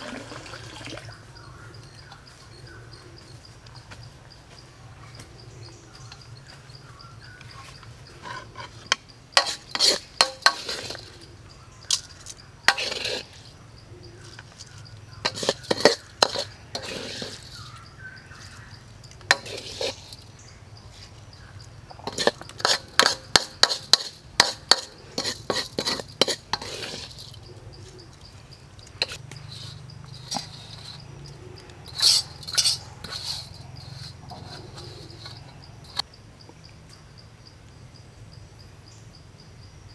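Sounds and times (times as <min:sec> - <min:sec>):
insect trill: 0:00.1 - 0:39.9
hard objects clattering and clinking: 0:08.2 - 0:11.3, 0:14.4 - 0:17.8, 0:22.0 - 0:27.5.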